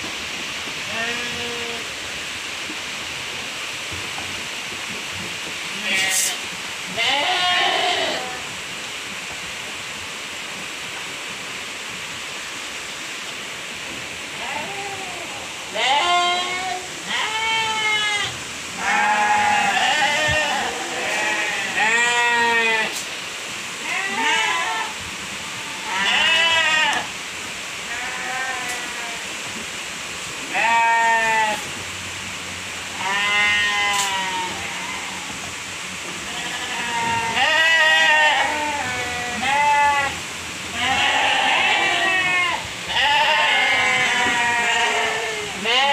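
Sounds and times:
sheep bleating: 5.8s - 6.4s, 7.0s - 8.4s, 14.4s - 23.0s, 25.7s - 27.1s, 32.9s - 35.2s, 36.3s - 45.9s.

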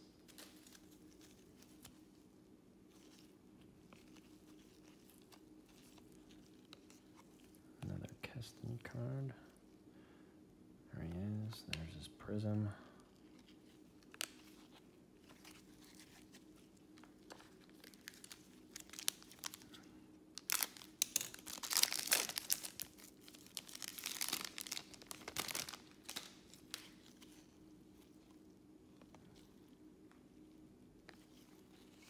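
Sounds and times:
foil wrapper tearing and crinkling: 17.3s - 27.5s.

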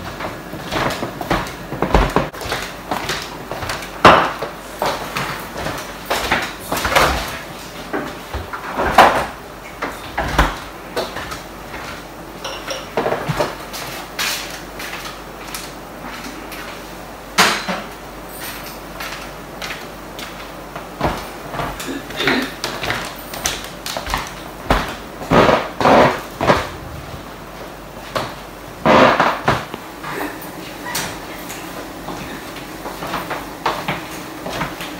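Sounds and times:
kitchen objects knocking and clunking: 0.0s - 7.3s.

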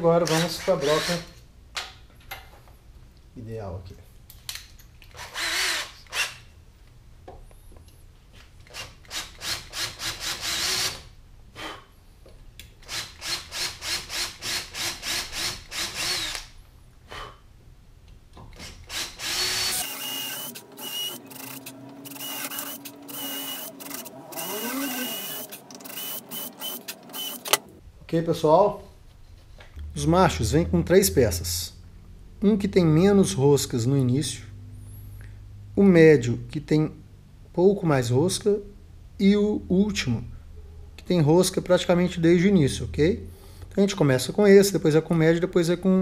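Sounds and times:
cordless drill boring aluminium: 5.1s - 6.4s, 8.7s - 11.0s, 12.8s - 16.5s, 18.6s - 27.7s.

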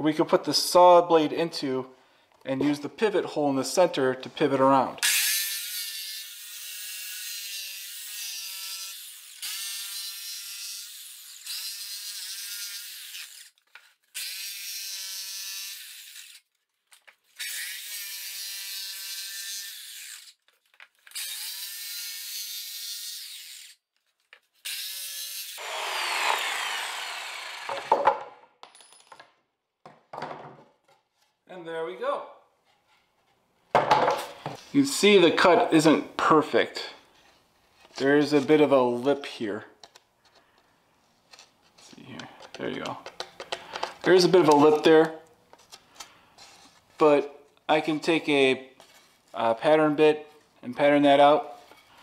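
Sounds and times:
jigsaw cutting plywood: 25.6s - 28.2s.

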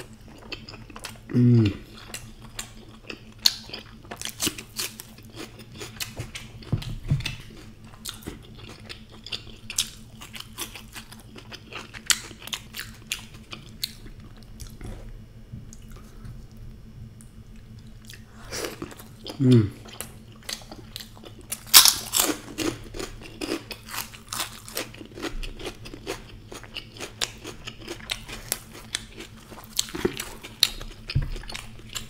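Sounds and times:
crunchy chewing: 0.0s - 32.0s
person humming: 1.3s - 2.0s, 19.3s - 20.0s.

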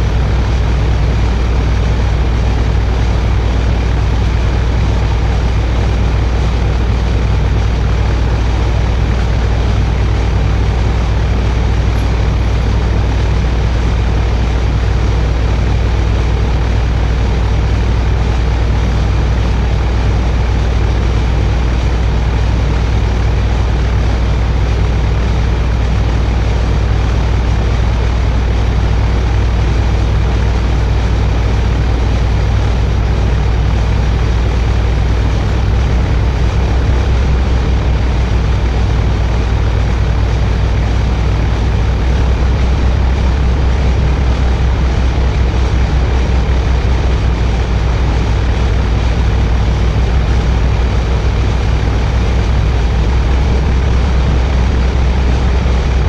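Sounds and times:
heavy low drone: 0.0s - 56.0s
harsh electronic noise music: 32.8s - 56.0s.

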